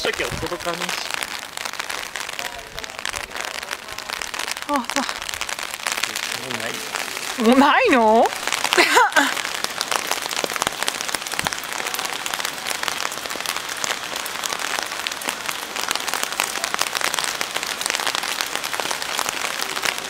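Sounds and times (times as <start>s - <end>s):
steady rain falling: 0.0s - 20.0s.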